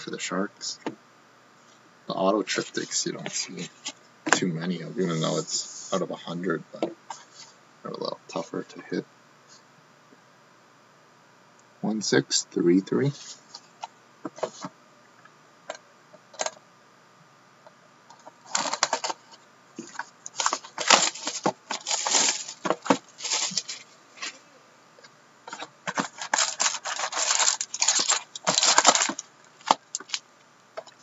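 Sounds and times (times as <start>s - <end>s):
plastic wrap crinkling and tearing: 18.4s - 19.2s, 19.8s - 24.3s, 25.5s - 30.2s
card packs pulled from box: 18.4s - 19.3s, 19.9s - 24.3s, 25.5s - 30.2s.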